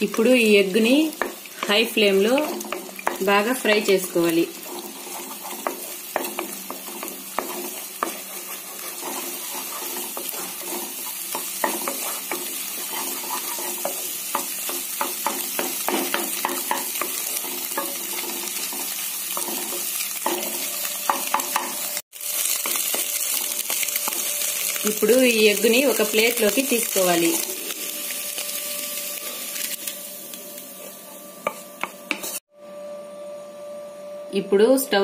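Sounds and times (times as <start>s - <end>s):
eggs sizzling in hot oil: 0.0s - 32.5s
wooden spatula scraping pan: 1.2s - 14.8s, 15.6s - 20.6s.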